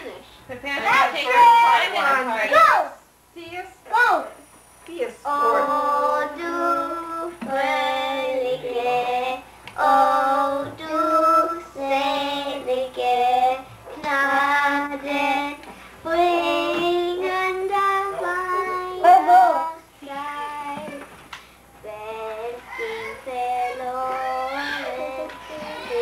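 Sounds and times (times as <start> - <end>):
young child singing: 5.3 - 21.2, 21.8 - 26.0.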